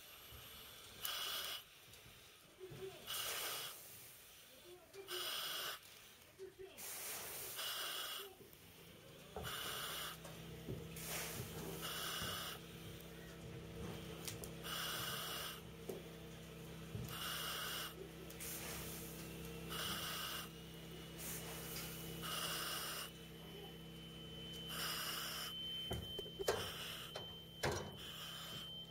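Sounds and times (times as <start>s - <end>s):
hissing breaths through mask: 0.0s - 13.4s, 14.1s - 15.7s, 16.9s - 28.9s
steady low hum: 6.4s - 28.9s
faint thin high tone: 23.4s - 28.9s.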